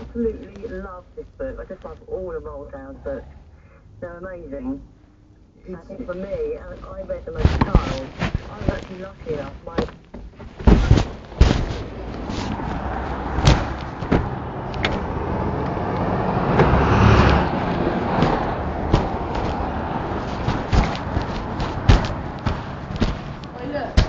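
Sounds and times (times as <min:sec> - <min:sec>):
road rumble: 0:00.0 - 0:24.0
sharp clunks and knocks: 0:07.4 - 0:24.0
car engine running: 0:10.7 - 0:24.0.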